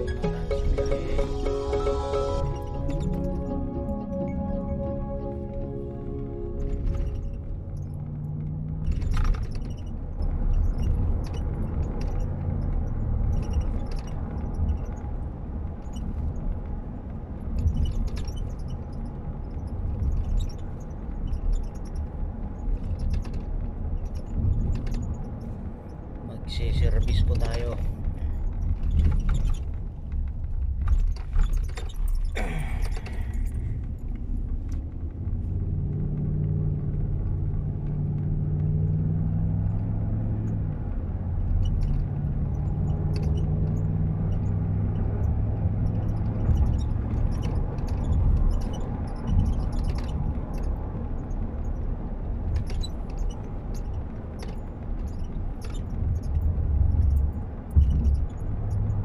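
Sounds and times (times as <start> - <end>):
car road and engine rumble: 0.0 - 59.0.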